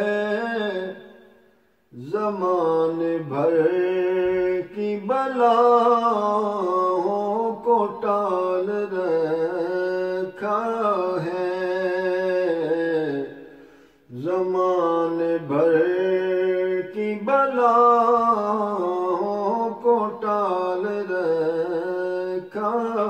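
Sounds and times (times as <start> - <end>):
man singing unaccompanied: 0.0 - 23.0.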